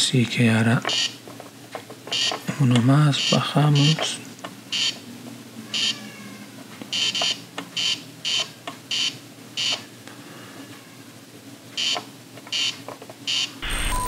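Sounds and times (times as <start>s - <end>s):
short electronic hissy bursts: 0.9s - 1.2s, 2.1s - 2.4s, 4.7s - 5.0s.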